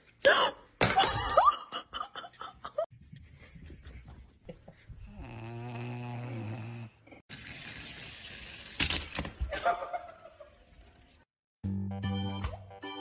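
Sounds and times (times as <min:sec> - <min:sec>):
puppy snoring: 0:05.1 - 0:07.0.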